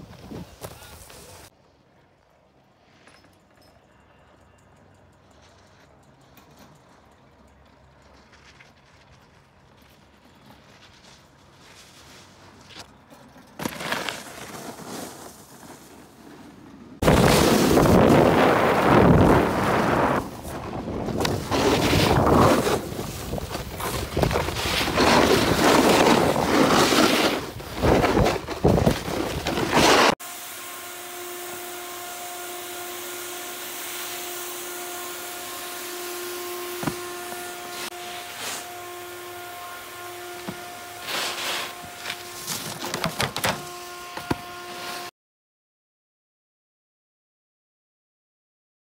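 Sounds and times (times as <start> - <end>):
snowboard scraping on snow: 0.0 - 1.5, 9.9 - 12.8, 13.6 - 30.2, 35.8 - 39.0, 39.6 - 43.6, 44.2 - 45.1.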